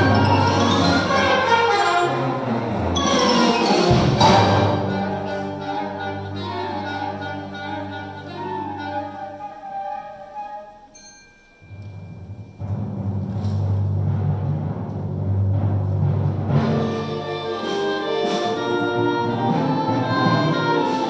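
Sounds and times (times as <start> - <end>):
wind ensemble playing: 0.0 - 11.0, 15.1 - 21.0.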